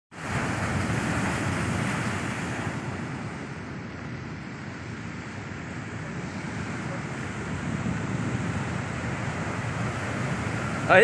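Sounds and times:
surf breaking against seawall: 0.1 - 3.5, 5.9 - 11.0
wind buffeting microphone: 0.1 - 11.0.

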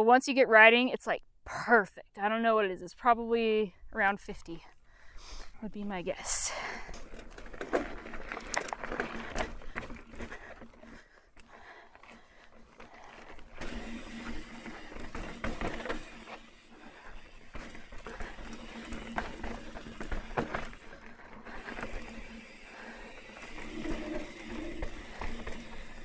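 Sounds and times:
bike tyres on dirt and rock: 4.3 - 26.0
bike clattering over bumps: 6.9 - 11.2, 11.9 - 26.0.

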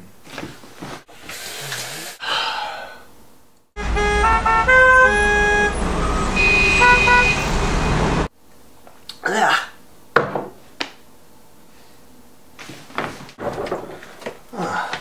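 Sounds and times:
car horns honking: 3.8 - 8.3.

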